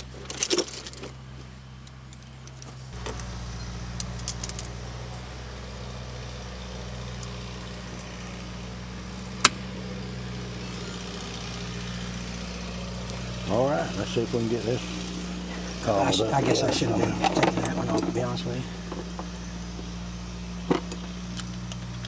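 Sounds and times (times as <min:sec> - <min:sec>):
metal tools clinking: 0:00.0 - 0:01.2, 0:01.8 - 0:04.8, 0:15.5 - 0:18.4
engine idling hum: 0:00.0 - 0:22.0.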